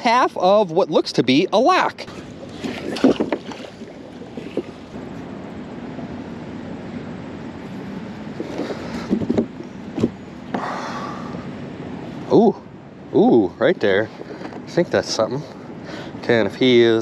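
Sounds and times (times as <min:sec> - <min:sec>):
water sounds: 0:00.0 - 0:12.5
magnet splashing into water: 0:02.1 - 0:04.9
wind noise on microphone: 0:02.1 - 0:10.3.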